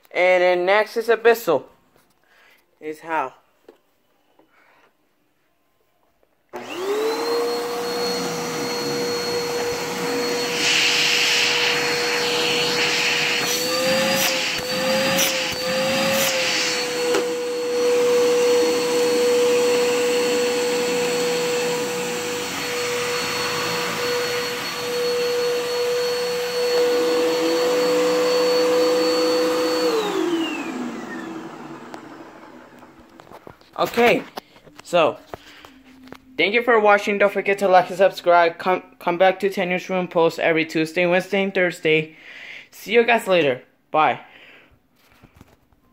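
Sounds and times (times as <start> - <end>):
vacuum cleaner motor whine: 6.5 - 34.2.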